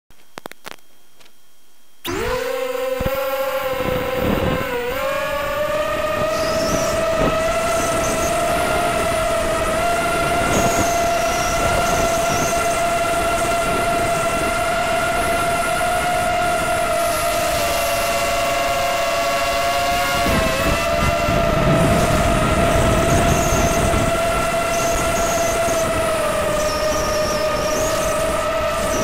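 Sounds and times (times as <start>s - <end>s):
quadcopter motors whining: 2.0s - 29.0s.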